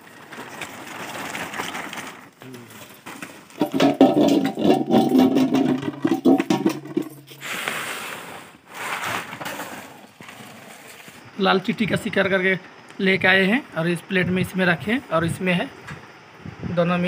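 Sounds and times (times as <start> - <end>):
low hum with crackles: 0.0 - 9.4, 10.0 - 16.4
plastic tarp rustling and crackling: 0.0 - 11.4.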